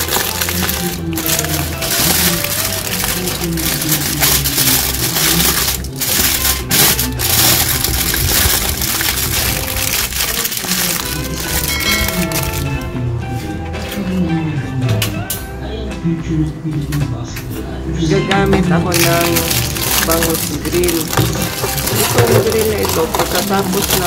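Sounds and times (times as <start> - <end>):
aluminium foil crinkling: 0.0 - 12.8, 18.8 - 24.0
background music: 0.0 - 24.0.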